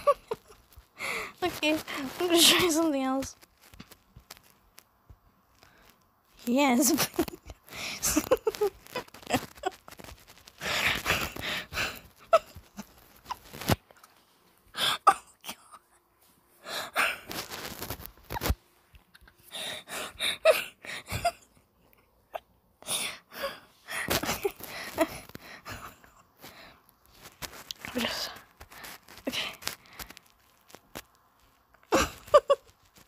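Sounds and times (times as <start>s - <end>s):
person snickering: 0.0s - 1.4s, 7.0s - 10.0s, 31.8s - 32.8s.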